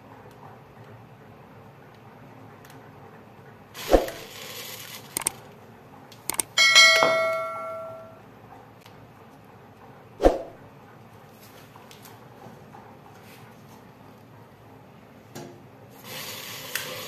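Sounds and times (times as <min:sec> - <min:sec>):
mouse clicks: 0:05.2 - 0:05.4, 0:06.3 - 0:06.6
bell ding: 0:06.3 - 0:08.2
whoosh: 0:10.2 - 0:10.6.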